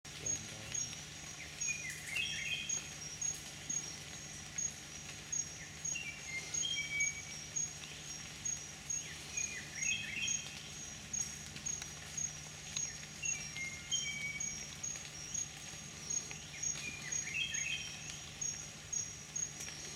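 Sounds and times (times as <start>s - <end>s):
whistled bird notes: 5.9s - 7.7s, 12.8s - 15.4s, 16.0s - 18.2s.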